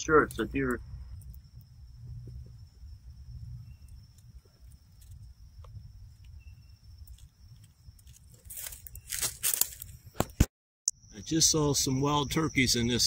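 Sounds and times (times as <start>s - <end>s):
low rumble on microphone: 0.0s - 8.0s
faint steady high tone: 10.9s - 13.0s.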